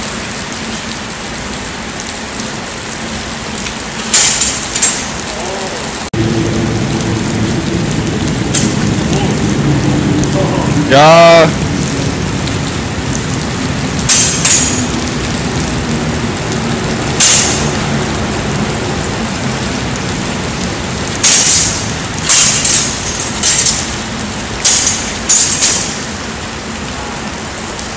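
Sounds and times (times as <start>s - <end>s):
steady rain hiss: 0.0s - 27.9s
sword blades clashing: 14.1s - 14.9s, 17.2s - 17.7s, 21.2s - 24.0s, 24.6s - 26.0s.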